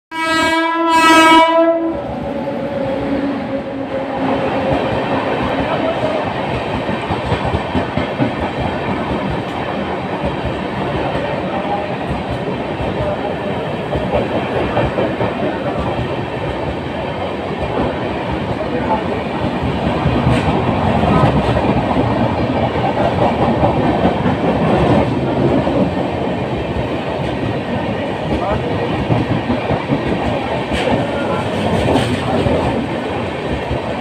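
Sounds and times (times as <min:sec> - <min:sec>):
train horn: 0:00.1 - 0:04.7
train rushing roar: 0:00.1 - 0:34.0
train wheels clattering: 0:04.6 - 0:11.3, 0:13.8 - 0:18.6, 0:19.4 - 0:34.0.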